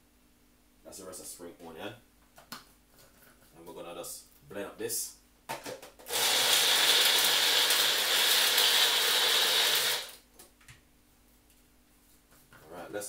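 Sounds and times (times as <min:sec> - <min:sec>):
small blender running: 0:06.1 - 0:10.2.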